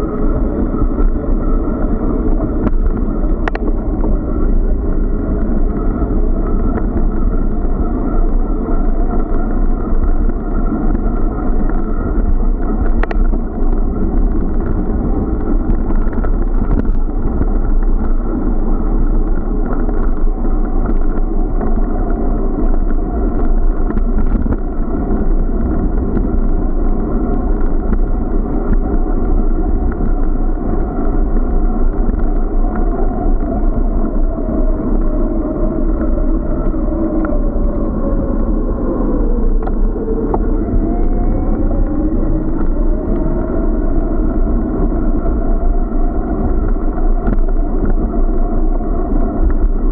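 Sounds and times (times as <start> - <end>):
bicycle riding rumble: 0.0 - 49.9
wind buffeting: 0.0 - 49.9.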